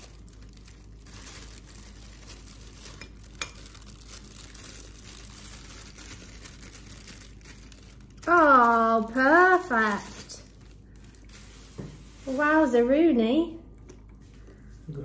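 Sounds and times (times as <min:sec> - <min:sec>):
plastic bag crinkling: 0:00.0 - 0:13.0
wet stirring: 0:00.7 - 0:07.0.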